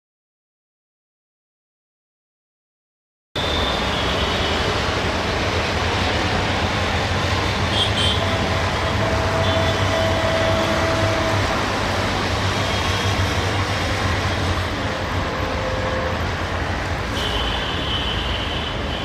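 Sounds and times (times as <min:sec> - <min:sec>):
diesel locomotive rumble: 0:03.4 - 0:17.8
city background noise: 0:03.4 - 0:19.0.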